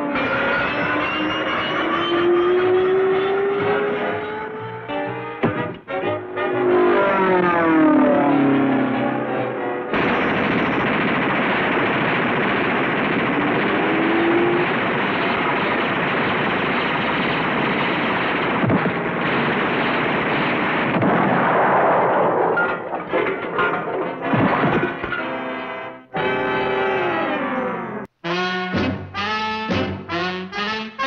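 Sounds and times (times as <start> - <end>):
music: 0.0 - 7.7, 24.2 - 31.0
knocks and crashes: 5.4 - 5.9, 22.5 - 25.7
cartoon machine-gun fire: 9.9 - 22.6.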